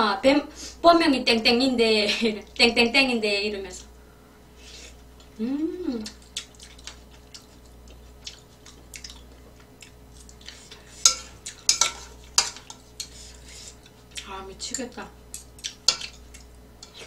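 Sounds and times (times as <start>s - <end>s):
metal utensils clinking on pan: 11.0s - 12.7s.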